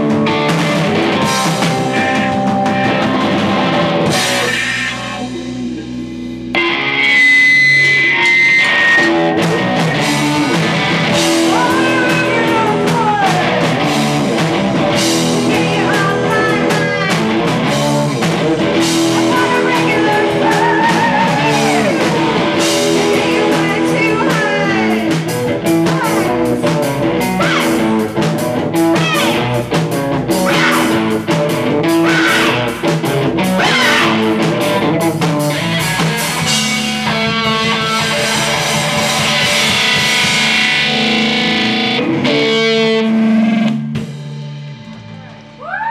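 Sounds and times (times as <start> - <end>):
rock band playing: 0.0 - 45.9
person singing: 11.3 - 13.7, 15.1 - 27.9, 28.8 - 29.5, 30.4 - 32.8, 33.5 - 34.4.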